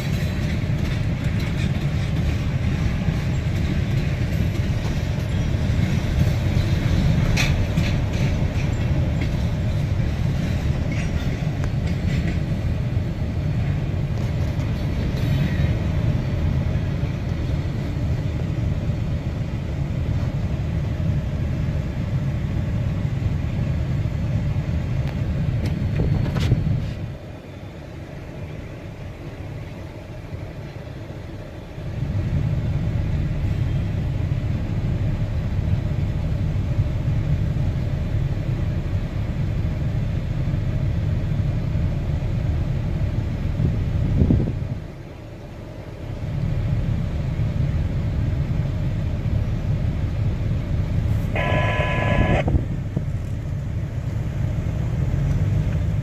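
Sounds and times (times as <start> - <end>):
car idling rumble: 0.0 - 56.0
short pitched tone: 51.2 - 52.5.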